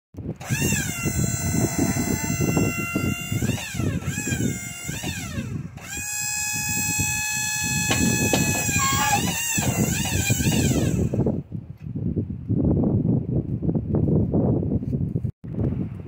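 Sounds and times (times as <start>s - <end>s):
hydraulic whine: 0.2s - 11.4s
engine running: 0.3s - 11.3s.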